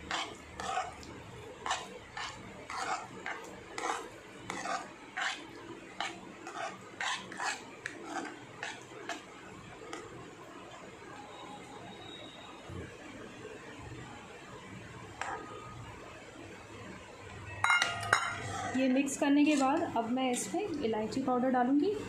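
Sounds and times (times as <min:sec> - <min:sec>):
metal spoon scraping steel bowl: 0:00.0 - 0:09.2, 0:18.0 - 0:18.8.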